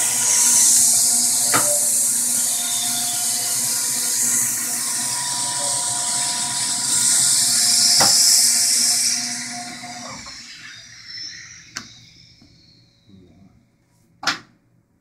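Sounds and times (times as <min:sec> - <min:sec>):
engraving machine hiss and whine: 0:00.0 - 0:13.4.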